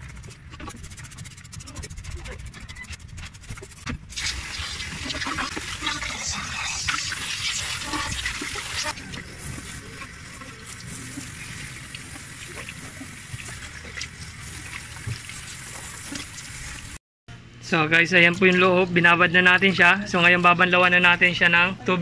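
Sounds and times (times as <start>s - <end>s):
brush scrubbing hose: 0.0s - 16.9s
water sloshing and splashing: 3.5s - 17.0s.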